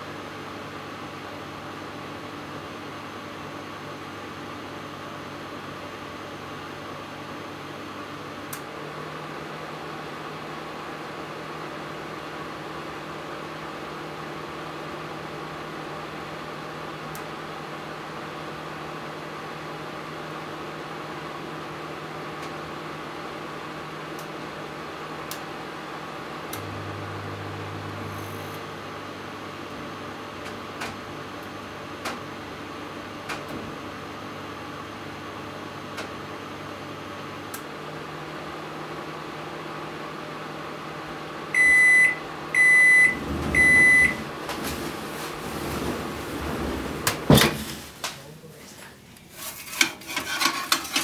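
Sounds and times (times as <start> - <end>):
deeper microwave hum: 0.0 - 49.2
microwave oven humming: 0.0 - 49.2
microwave beeps: 41.6 - 44.3.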